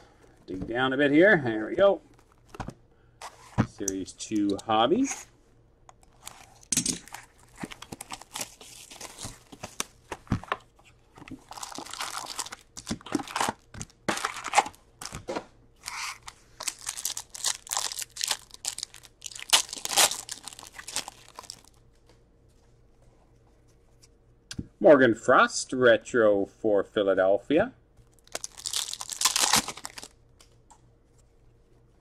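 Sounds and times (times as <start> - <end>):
foil wrappers crinkling and tearing: 6.1 - 9.9, 11.3 - 15.2, 15.8 - 21.8, 28.1 - 30.2.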